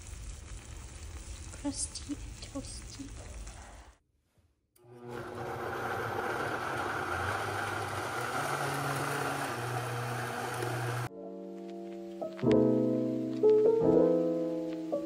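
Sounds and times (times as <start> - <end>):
blender motor running: 4.8 - 11.1.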